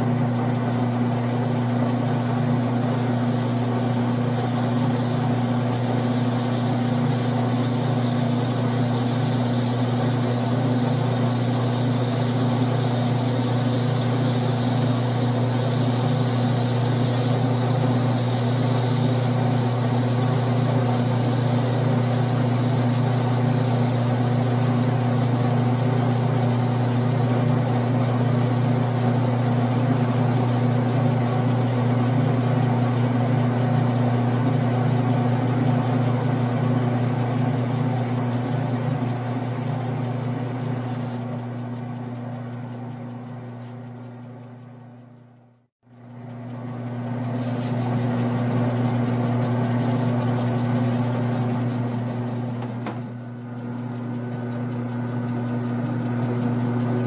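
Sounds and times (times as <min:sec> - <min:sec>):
lathe running: 0:00.0 - 0:45.1, 0:45.9 - 0:57.0.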